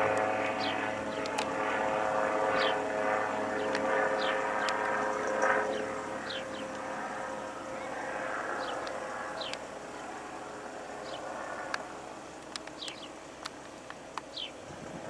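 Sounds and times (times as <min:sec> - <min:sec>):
gyroplane engine and propeller drone: 0:00.0 - 0:15.0
sharp clicks: 0:01.2 - 0:01.6, 0:11.7 - 0:14.4.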